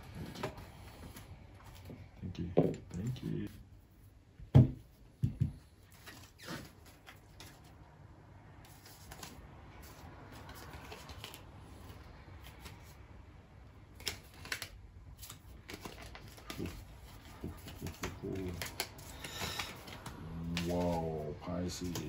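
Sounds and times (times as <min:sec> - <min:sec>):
cards being shuffled: 0:05.8 - 0:07.8, 0:08.6 - 0:13.0, 0:13.9 - 0:22.0.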